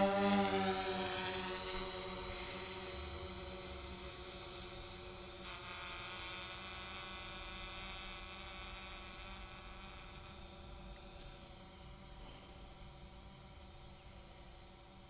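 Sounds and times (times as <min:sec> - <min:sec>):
quadcopter propellers buzzing: 0:00.0 - 0:11.5.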